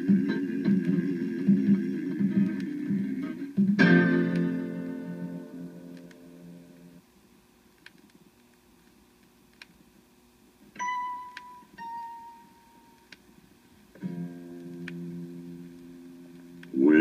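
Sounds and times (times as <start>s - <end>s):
music: 0.0s - 7.0s, 10.8s - 13.2s, 14.0s - 17.0s
vinyl surface noise: 0.0s - 17.0s
record clicks: 7.7s - 9.8s
ding tones: 10.8s - 13.0s.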